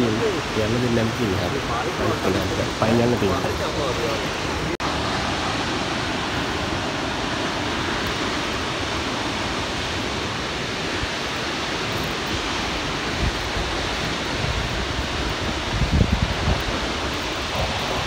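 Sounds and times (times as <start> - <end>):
waterfall roaring: 0.0 - 18.0
wind thumps on microphone: 13.1 - 18.0.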